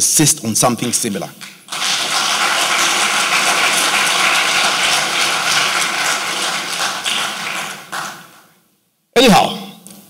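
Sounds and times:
audience applauding: 1.4s - 8.5s.

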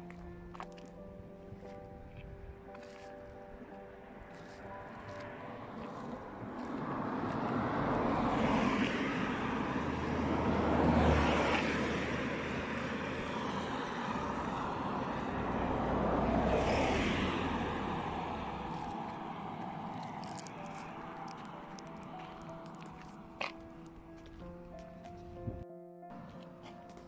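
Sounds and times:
road traffic passing: 0.0s - 27.0s
low engine hum: 4.0s - 25.6s.

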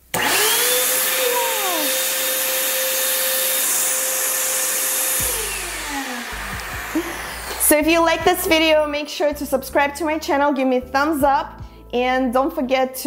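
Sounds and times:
blower fan rushing hiss: 0.0s - 8.4s
motor whine: 0.2s - 7.8s.

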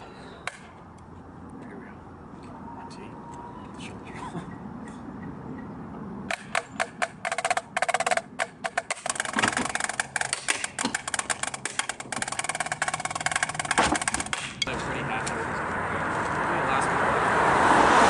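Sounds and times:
drumsticks on practice pads: 6.3s - 14.7s.

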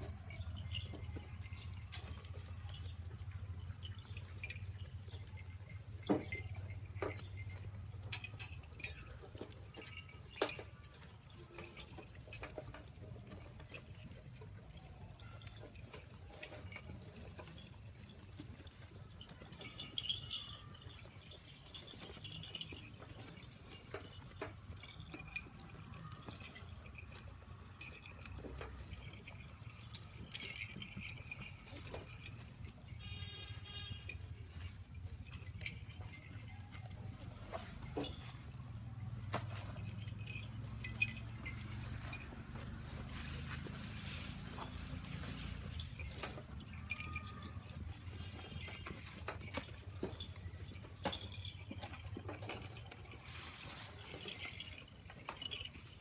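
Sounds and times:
goats chewing with crunches: 0.0s - 56.0s
rustling leafy stalks: 39.6s - 49.5s, 52.9s - 56.0s
leaves rustling: 41.6s - 46.2s, 53.2s - 54.7s.

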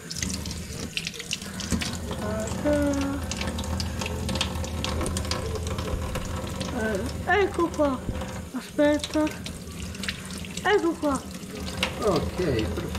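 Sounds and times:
tap running into steel sink: 0.0s - 10.2s.

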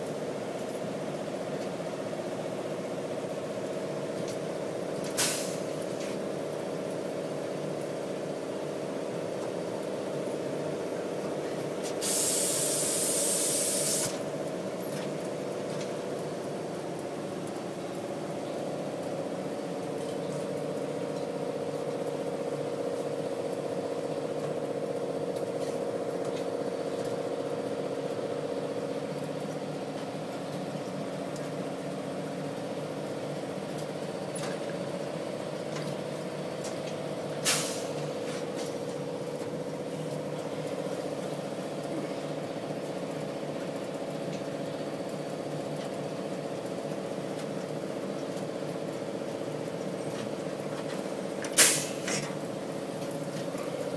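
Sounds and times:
press running with steady hum: 0.0s - 53.9s
loud hiss: 12.0s - 14.2s, 51.6s - 52.2s.

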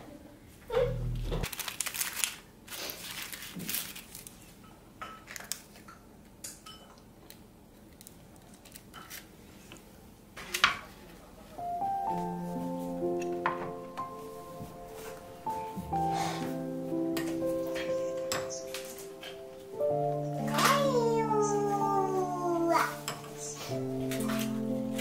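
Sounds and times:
paper liners crinkling: 1.4s - 4.5s.

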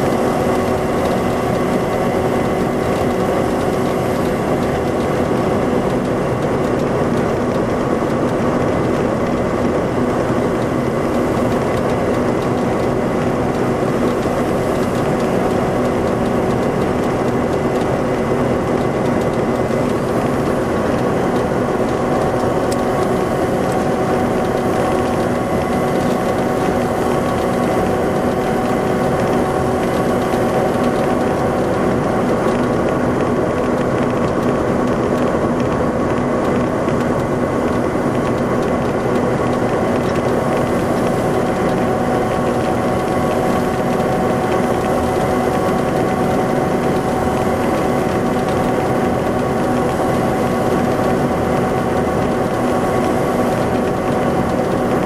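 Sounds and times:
diesel engine running steadily: 0.0s - 55.0s.

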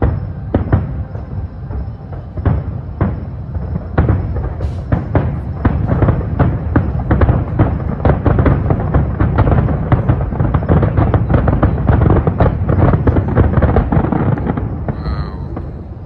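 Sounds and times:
fireworks bangs and crackles: 0.0s - 16.0s
low rumble: 14.9s - 16.0s.

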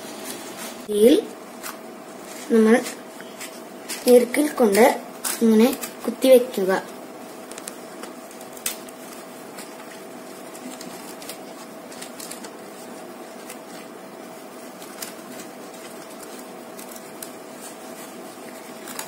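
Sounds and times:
steady hum: 0.0s - 19.0s
stiff leaves crackling and clicking: 7.4s - 19.0s.

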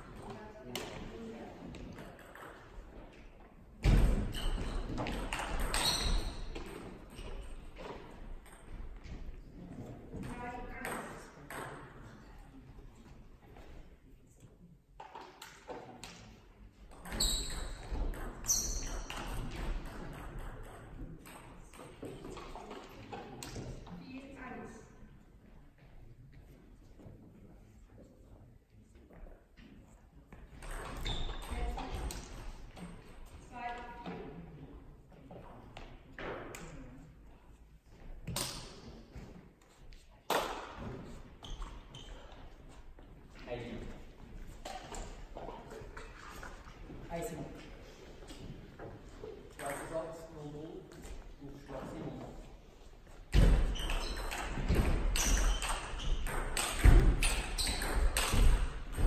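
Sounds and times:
sharp knocks echoing in hall: 0.0s - 12.3s, 53.2s - 59.0s
short high squeaks: 5.7s - 6.4s.

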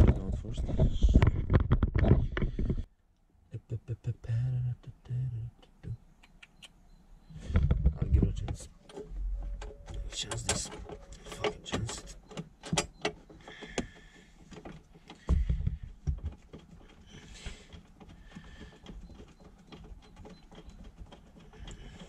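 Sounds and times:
cable scraping against trim: 7.4s - 22.0s.

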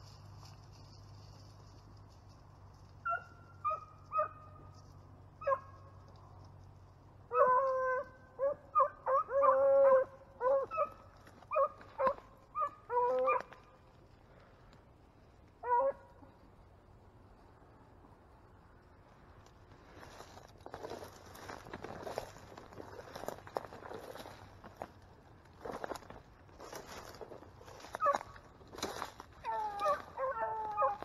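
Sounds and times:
beagles baying: 3.0s - 6.1s, 6.7s - 14.0s, 15.6s - 16.5s, 26.8s - 31.0s.

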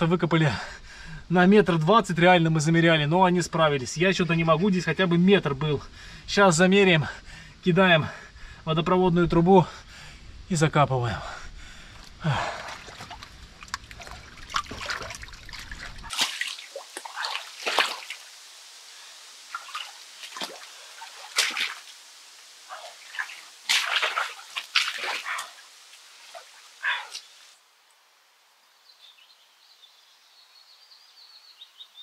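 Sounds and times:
water and clay splashing: 12.2s - 18.3s, 19.4s - 22.0s, 22.7s - 27.3s.

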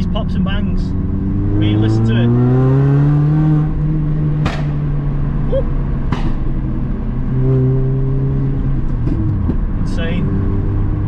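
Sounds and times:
exhaust pops: 4.3s - 5.0s.

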